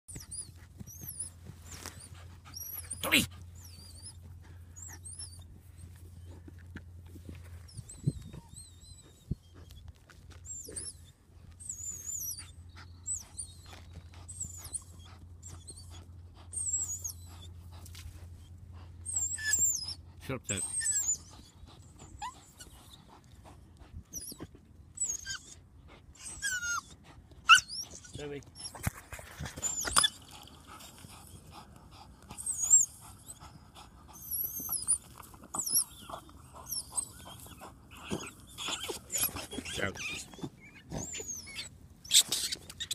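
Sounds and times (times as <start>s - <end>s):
dog panting: 0.1s - 24.7s, 25.5s - 42.9s
dog panting hard: 28.7s - 41.6s
scrabbling while digging: 34.2s - 42.9s.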